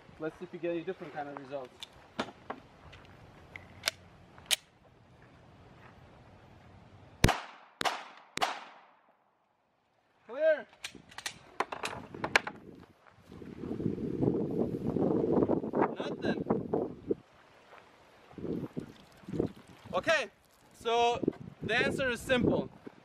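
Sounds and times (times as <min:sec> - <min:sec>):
pistol shots: 0:07.2 - 0:09.0.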